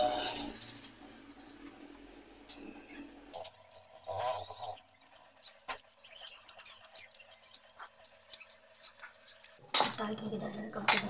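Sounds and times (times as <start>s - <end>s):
faint steady hum: 0.0s - 11.0s
potatoes squishing being mashed: 5.1s - 10.2s.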